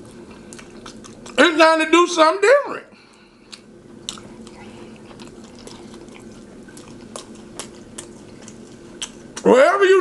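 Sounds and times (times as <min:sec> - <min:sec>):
mouth chewing food: 0:00.0 - 0:01.6, 0:03.0 - 0:09.6
faint low hum: 0:00.0 - 0:10.0.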